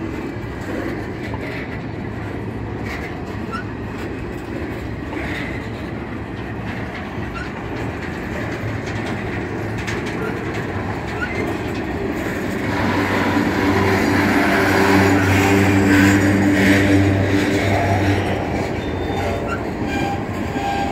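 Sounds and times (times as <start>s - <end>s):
train wheels rumbling on rails: 0.0s - 20.9s.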